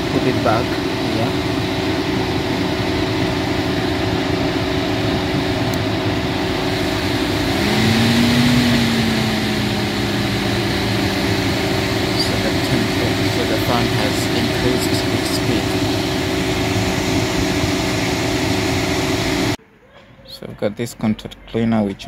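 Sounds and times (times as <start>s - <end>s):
electric radiator fan running: 0.0s - 19.6s.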